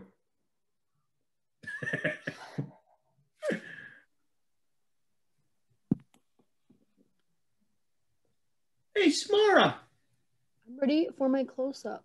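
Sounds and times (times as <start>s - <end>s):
person sighing breathily: 3.4s - 4.1s.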